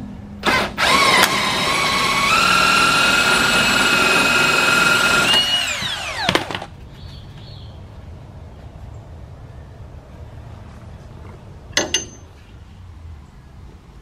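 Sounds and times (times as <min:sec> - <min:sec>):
power driver motor whirring: 0:00.4 - 0:06.3.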